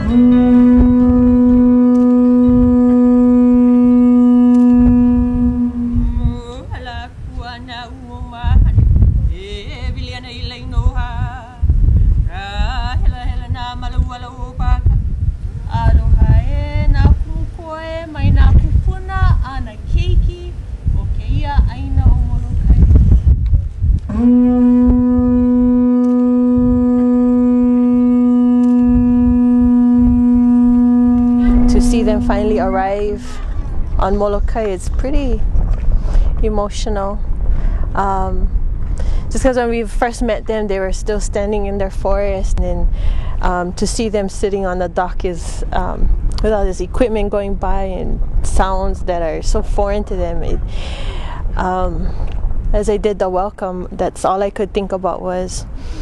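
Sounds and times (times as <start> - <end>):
conch shell trumpet note: 0.0 - 6.4, 24.1 - 33.8.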